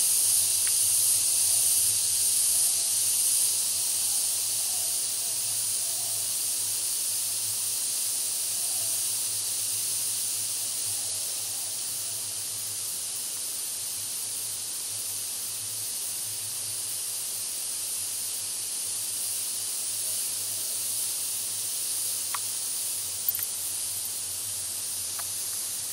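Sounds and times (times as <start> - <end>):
steady high hiss: 0.0 - 25.9
faint ticks: 0.4 - 1.0, 22.2 - 22.6, 23.2 - 23.6, 25.0 - 25.9.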